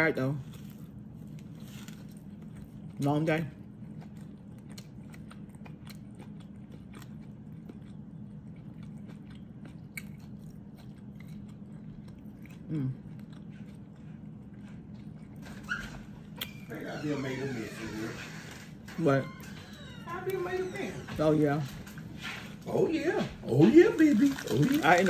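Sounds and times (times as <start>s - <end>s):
steady low hum: 0.0s - 25.0s
person chewing food: 0.4s - 16.8s.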